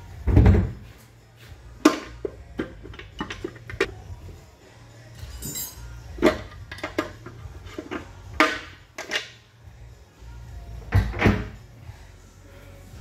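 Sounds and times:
metal knocks and clinks: 5.2 - 7.0.

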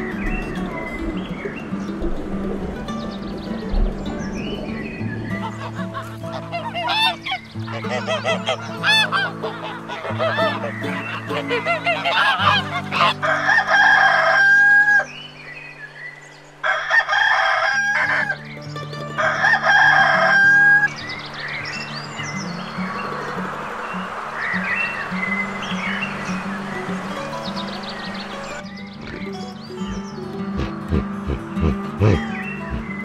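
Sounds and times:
soft background music: 0.0 - 33.0
rooster crowing: 12.0 - 15.2, 16.6 - 18.4, 19.2 - 20.9
rapid short bird calls: 21.0 - 33.0.

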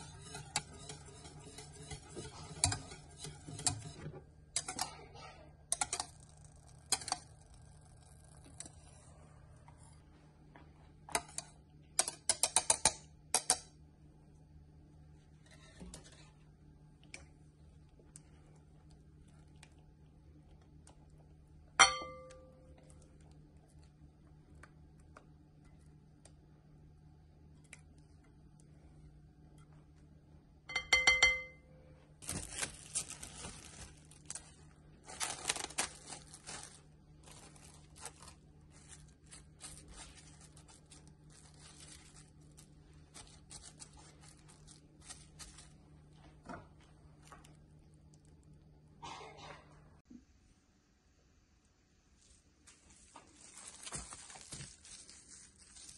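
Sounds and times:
cling film crinkling: 32.2 - 45.8, 52.6 - 55.9.

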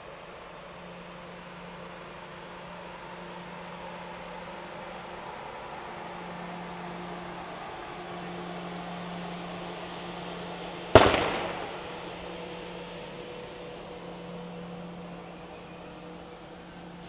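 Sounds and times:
train rolling past humming: 0.0 - 17.0
sharp ringing bang: 11.0 - 12.2.

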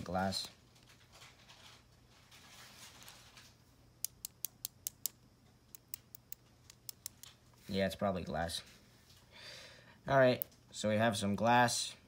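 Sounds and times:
ballpoint pen clicking: 4.0 - 7.3.

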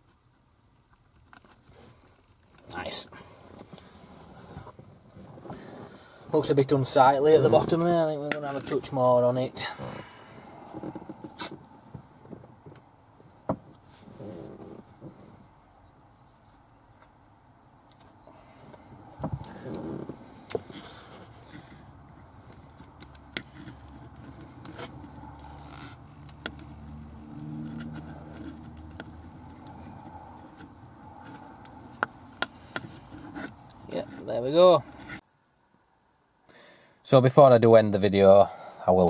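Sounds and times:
tape rustling and scraping: 0.0 - 9.2, 9.8 - 35.2.

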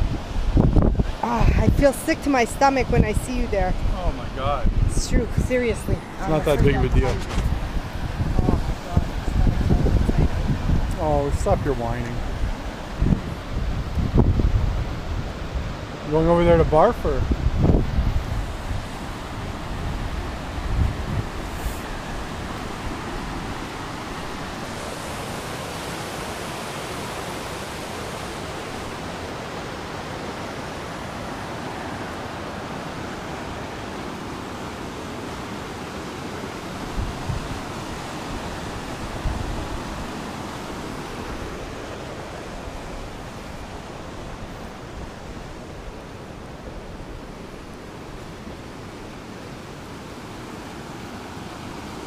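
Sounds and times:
river rapids rushing: 17.5 - 52.0.

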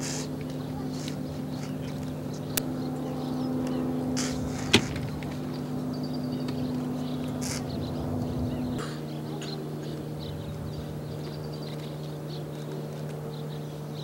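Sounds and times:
low mechanical hum: 0.0 - 14.0
helicopter door shutting: 3.6 - 5.6.

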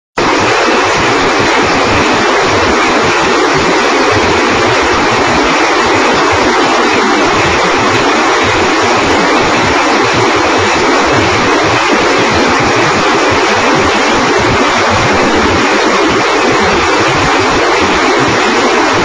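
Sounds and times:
rocket launcher roaring: 0.2 - 19.0.

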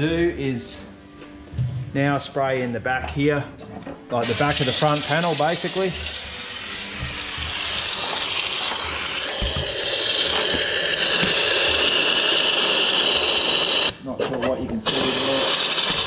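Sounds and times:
spray gun hissing: 4.2 - 14.0, 14.9 - 16.0.

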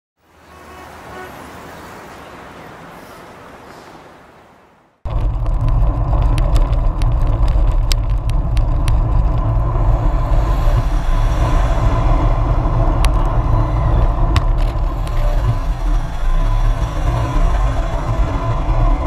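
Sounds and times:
motor traffic passing: 0.2 - 19.0
road noise: 0.2 - 19.0
wind rumble: 4.0 - 19.0.

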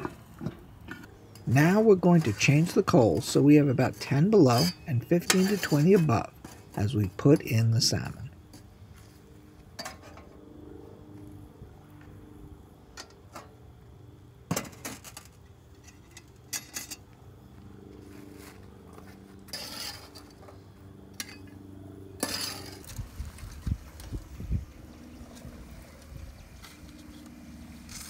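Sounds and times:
metal shovel scraping charcoal: 0.0 - 10.4, 14.5 - 17.1, 18.1 - 24.4, 25.2 - 28.0.

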